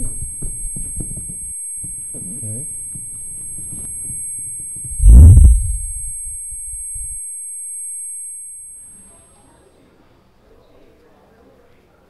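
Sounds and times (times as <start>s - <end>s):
high-pitched ringing tone: 0.0s - 9.2s
deep boom: 5.0s - 7.2s.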